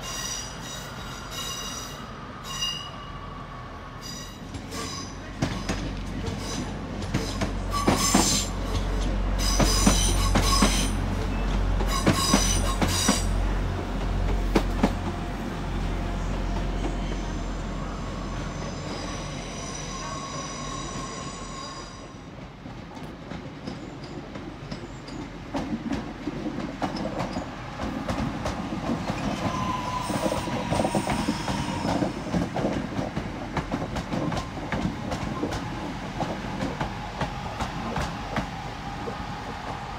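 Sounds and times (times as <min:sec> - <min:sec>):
train wheel squeal: 0:00.0 - 0:13.3, 0:16.2 - 0:22.3, 0:23.6 - 0:25.4, 0:28.9 - 0:32.7.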